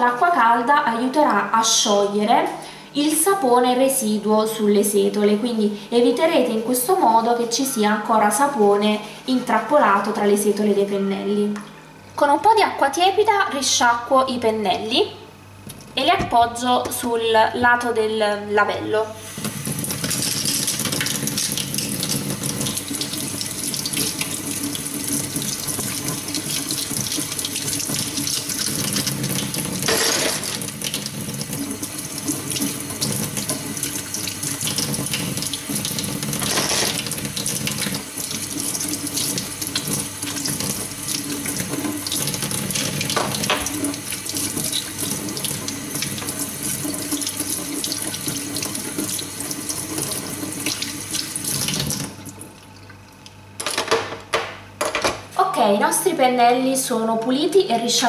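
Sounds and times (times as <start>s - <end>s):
tap water running into sink: 19.3s - 52.5s.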